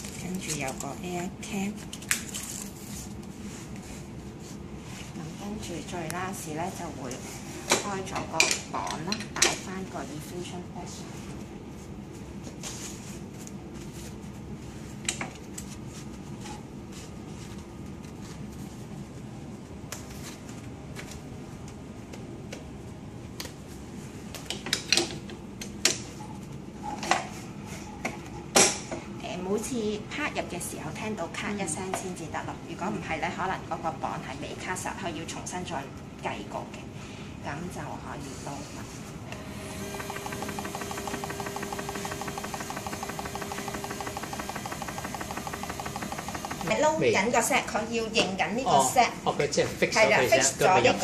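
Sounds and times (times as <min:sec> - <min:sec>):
steady background hum: 0:00.0 - 0:51.0
pump motor whine: 0:39.3 - 0:47.0
rapid even ticking: 0:39.7 - 0:46.9.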